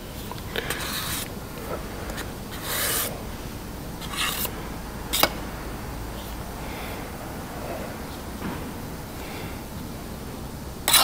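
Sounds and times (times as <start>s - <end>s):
scraper scraping body filler: 0.7s - 3.1s.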